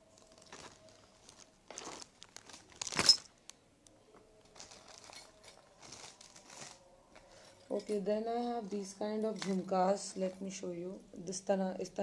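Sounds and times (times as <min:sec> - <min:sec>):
plastic wrapping crinkling: 0:00.0 - 0:08.0.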